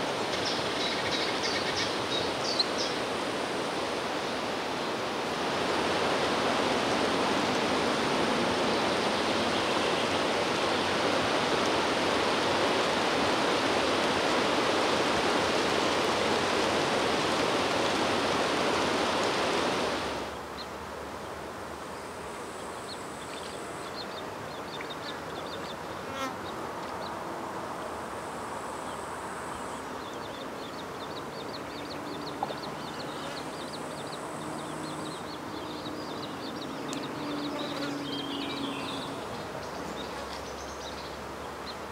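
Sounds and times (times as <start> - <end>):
loud rush of water: 0.0 - 26.0, 26.6 - 41.9
birds trilling and chirping: 29.6 - 41.9.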